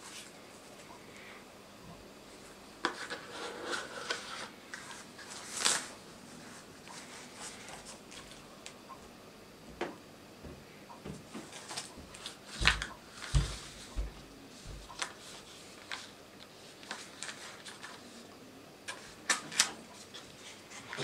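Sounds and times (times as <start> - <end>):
cardboard rubbing and sliding: 2.8 - 4.6.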